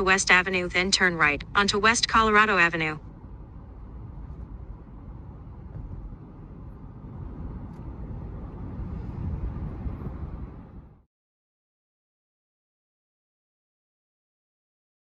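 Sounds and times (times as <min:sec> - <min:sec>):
car engine and road noise: 0:00.0 - 0:11.1.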